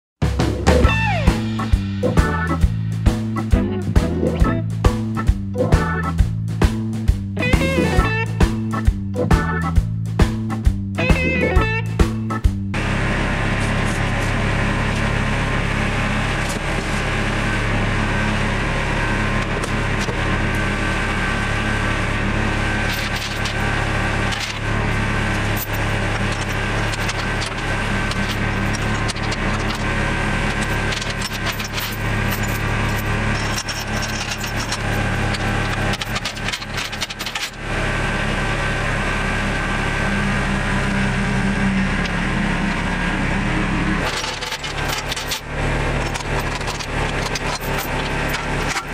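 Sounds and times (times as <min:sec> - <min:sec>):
tractor engine running: 0:00.2 - 0:48.9
chains clinking and rattling: 0:22.8 - 0:24.6, 0:25.4 - 0:37.6, 0:44.0 - 0:48.9.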